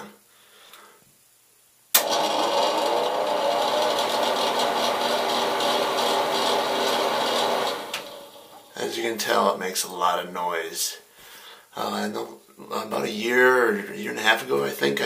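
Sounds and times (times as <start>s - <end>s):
exhaust fan running: 2.0s - 8.7s.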